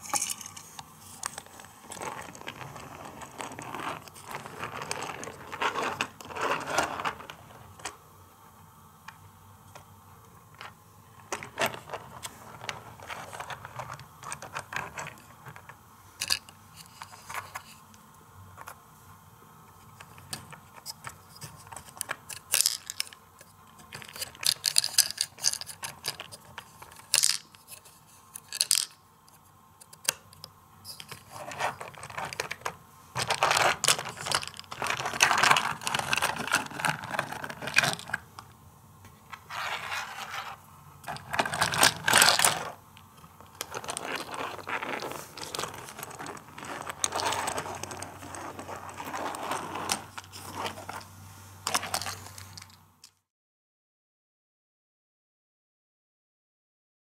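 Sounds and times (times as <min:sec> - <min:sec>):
small balls rattling: 0:00.0 - 0:07.9, 0:10.6 - 0:17.6, 0:21.7 - 0:23.2, 0:23.8 - 0:27.8, 0:28.4 - 0:29.0, 0:30.9 - 0:38.4, 0:39.3 - 0:53.2
plastic toys clicking and scraping: 0:00.0 - 0:08.0, 0:10.5 - 0:17.8, 0:19.9 - 0:29.0, 0:29.8 - 0:38.5, 0:39.3 - 0:53.2.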